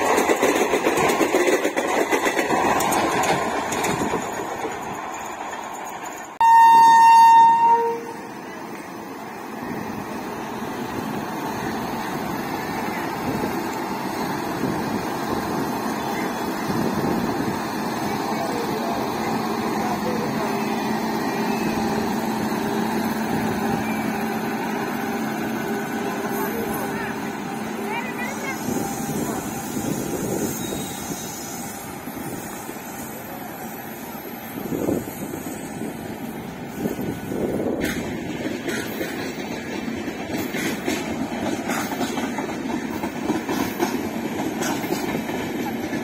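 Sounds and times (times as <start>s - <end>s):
wheels clacking over rail joints: 0.0s - 6.4s, 37.6s - 46.0s
train rolling noise: 0.0s - 46.0s
locomotive machinery hum: 0.1s - 46.0s.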